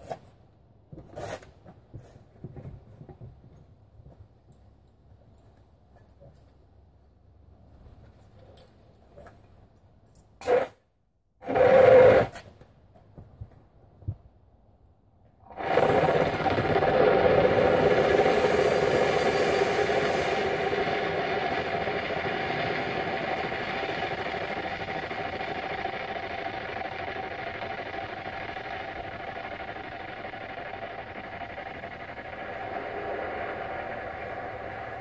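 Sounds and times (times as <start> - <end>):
fire extinguisher hissing: 15.5 - 35.0.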